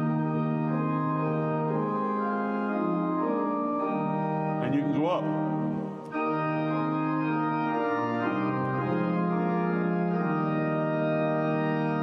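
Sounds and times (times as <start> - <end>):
pipe organ chords: 0.0 - 12.0.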